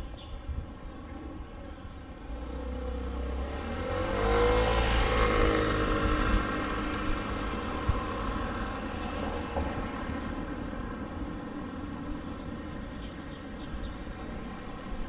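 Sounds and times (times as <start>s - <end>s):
motor vehicle passing: 2.3s - 11.1s.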